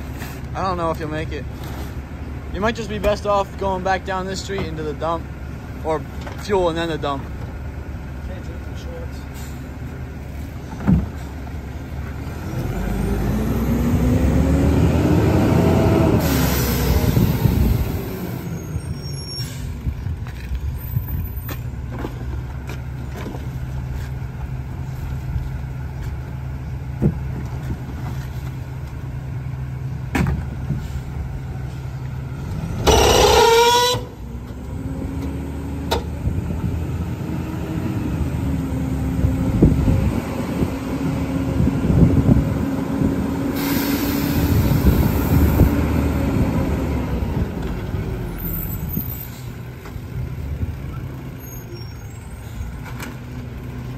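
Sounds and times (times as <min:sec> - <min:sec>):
truck idling: 0:00.0 - 0:53.9
hydraulic packer whine: 0:32.4 - 0:36.2, 0:41.9 - 0:47.7.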